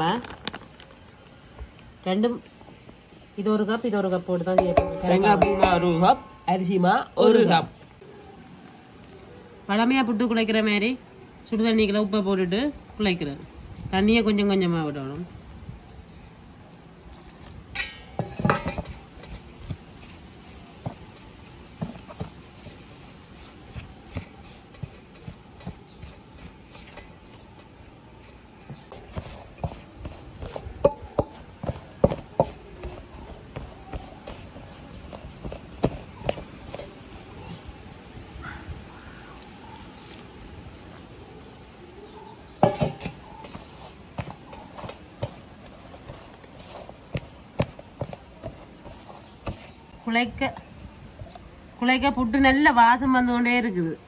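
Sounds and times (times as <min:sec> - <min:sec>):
hand mixing in steel bowl: 0:03.8 - 0:07.5, 0:17.0 - 0:37.9, 0:39.3 - 0:49.9.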